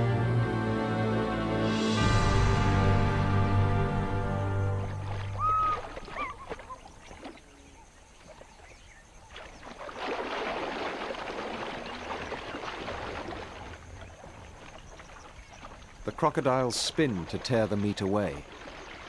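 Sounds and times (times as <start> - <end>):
crocodiles splashing in water: 4.8 - 19.0.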